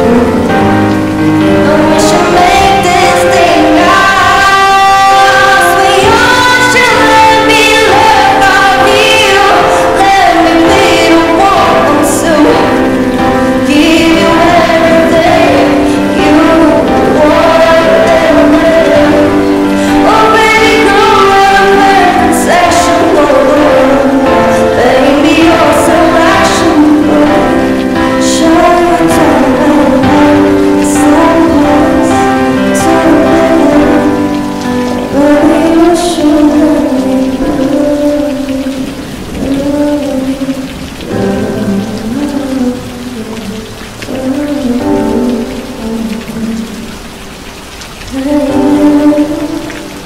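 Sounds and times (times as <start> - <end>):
woman singing pop song: 0.0 - 0.8, 1.4 - 46.9, 48.1 - 50.0.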